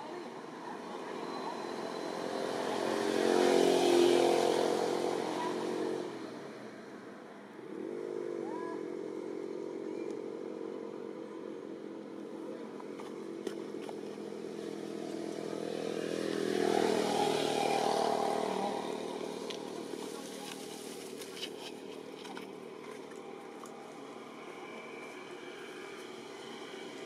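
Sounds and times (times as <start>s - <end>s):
passing motor vehicles: 0.0s - 27.0s.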